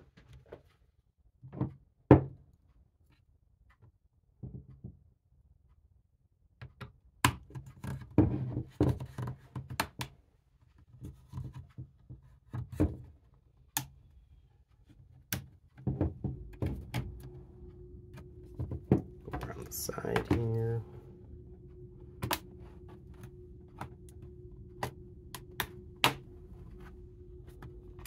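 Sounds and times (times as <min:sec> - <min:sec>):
rubbing and handling noise: 0:10.4 - 0:28.0.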